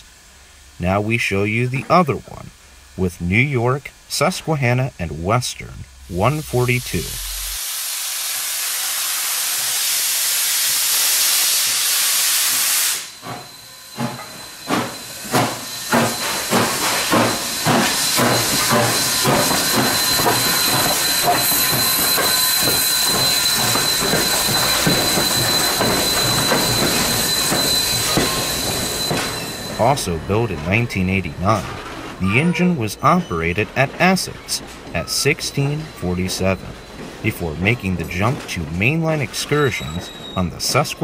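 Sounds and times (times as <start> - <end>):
steam hissing: 0.0 - 41.0
steam locomotive chuffing: 0.0 - 41.0
high squeal: 13.0 - 41.0.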